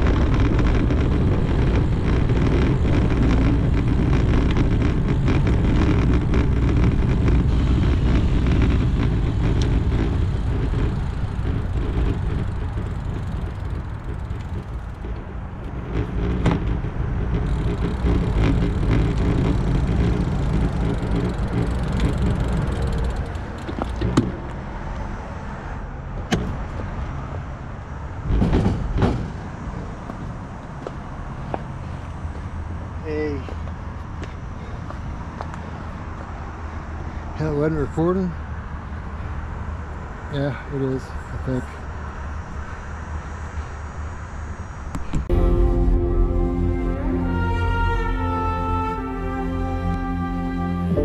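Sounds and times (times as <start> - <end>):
bike clicks and knocks: 0.0 - 25.1, 26.2 - 27.1, 28.2 - 31.7
wind and tyres rumbling on asphalt: 0.0 - 51.0.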